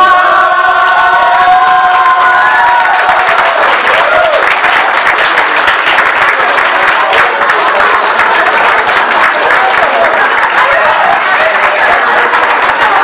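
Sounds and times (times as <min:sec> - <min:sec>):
choir singing: 0:00.0 - 0:02.9
people applauding: 0:00.0 - 0:13.0.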